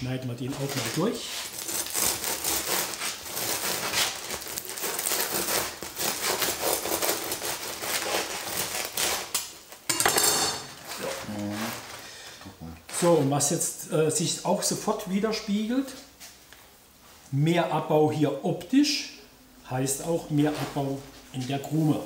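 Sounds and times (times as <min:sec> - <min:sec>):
bread knife sawing through crust: 0:00.6 - 0:09.4
bread halves crunching apart: 0:00.6 - 0:09.5.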